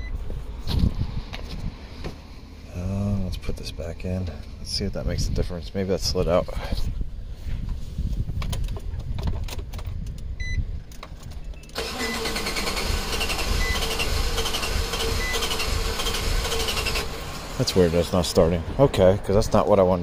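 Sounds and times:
engine cranking on starter: 0:11.7 - 0:18.4.

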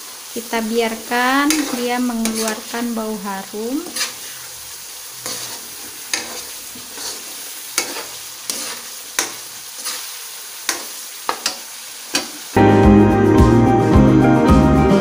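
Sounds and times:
spice paste sizzling in a wok: 0:00.0 - 0:13.2
metal spoon scraping a pan: 0:01.4 - 0:02.9, 0:03.6 - 0:12.5.

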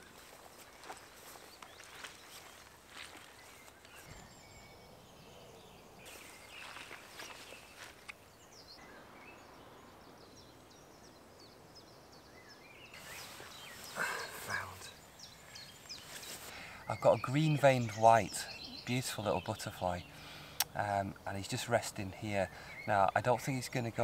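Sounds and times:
footsteps rustling through long grass: 0:00.0 - 0:04.1, 0:06.0 - 0:08.2, 0:13.0 - 0:16.5
small birds chirping: 0:00.0 - 0:24.0.

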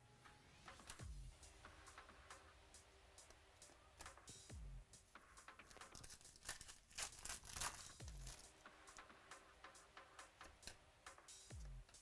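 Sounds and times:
card pack wrapper tearing: 0:05.6 - 0:08.5.

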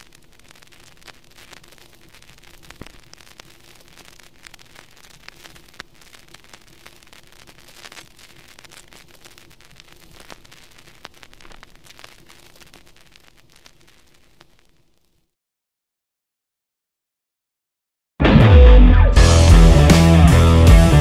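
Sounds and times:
steady hiss: 0:00.0 - 0:15.3.

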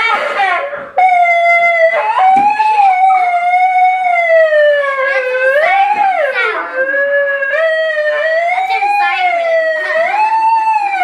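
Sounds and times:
toy megaphone siren wail: 0:00.0 - 0:11.0.

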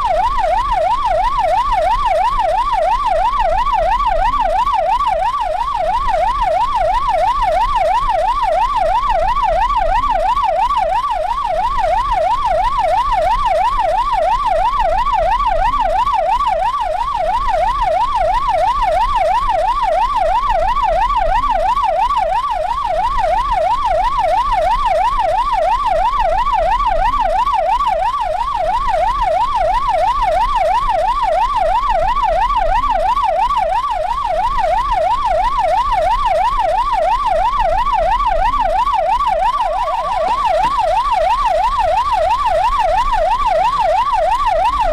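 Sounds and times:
police siren yelping: 0:00.0 - 0:44.9.

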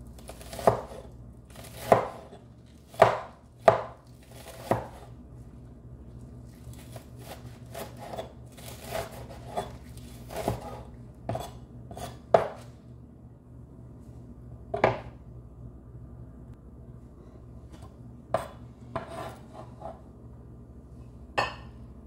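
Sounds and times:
faint low hum: 0:00.0 - 0:22.0
cleaver chopping on wooden board: 0:01.7 - 0:02.3, 0:02.9 - 0:05.0.

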